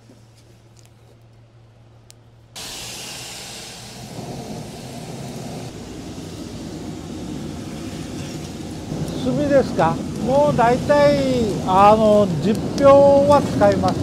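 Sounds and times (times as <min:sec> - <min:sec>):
forge fire roaring under air blast: 0:02.6 - 0:14.0.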